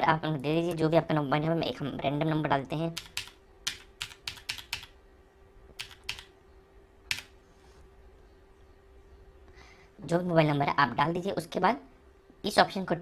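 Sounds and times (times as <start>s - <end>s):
faint steady hum: 0.0s - 13.0s
keyboard key clicks: 5.8s - 6.3s, 7.1s - 7.3s.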